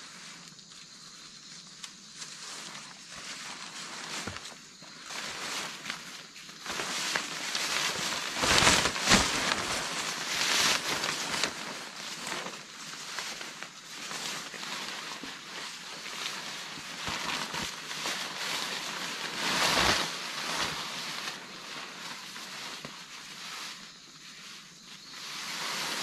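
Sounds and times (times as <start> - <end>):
plastic tarp crinkling: 2.2 - 26.0.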